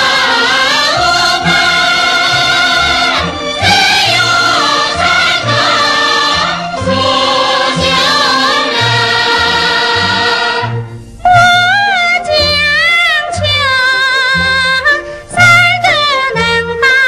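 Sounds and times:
chorus singing folk song: 0.0s - 11.8s
instrumental accompaniment: 0.0s - 17.0s.

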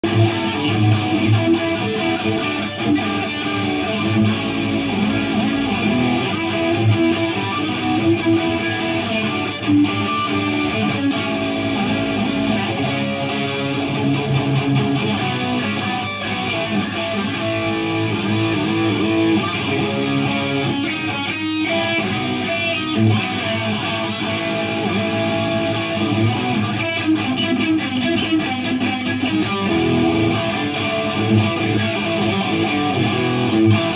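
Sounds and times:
distorted electric guitar riffs: 0.0s - 33.9s.

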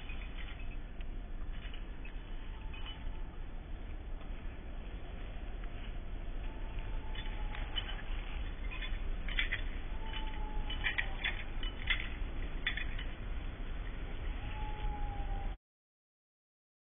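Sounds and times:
dog collar clinking: 0.0s - 3.4s, 6.6s - 13.2s
low rumble: 0.0s - 15.6s.

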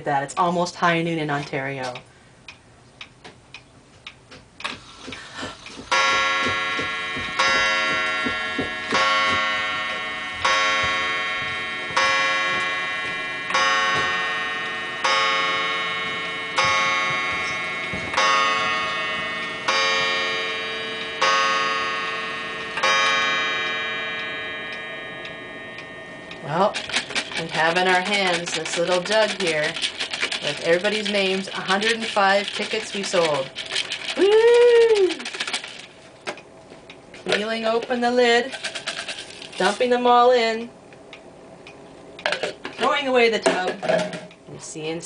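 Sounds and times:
pendulum clock ticking: 1.3s - 33.6s
clock gong striking: 5.9s - 28.9s.

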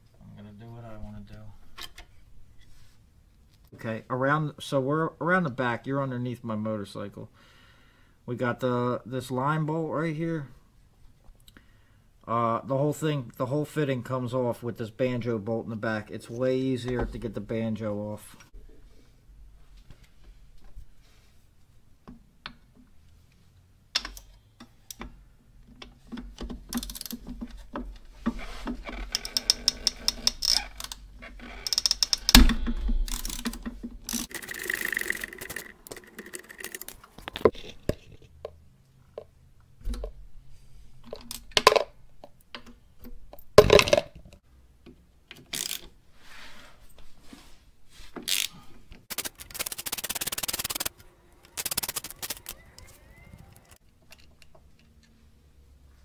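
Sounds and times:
socket ratchet clicking: 31.6s - 32.4s, 49.1s - 50.9s, 51.5s - 52.5s.

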